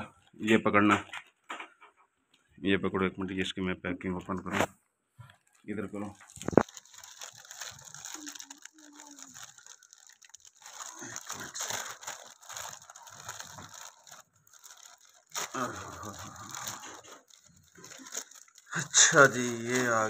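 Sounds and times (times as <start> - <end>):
plastic bag tearing and crinkling: 5.4 - 20.0.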